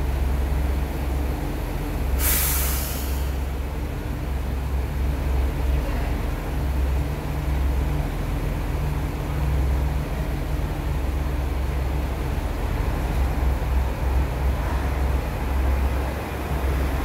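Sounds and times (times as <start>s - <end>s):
diesel railcar engine drone: 0.0s - 17.0s.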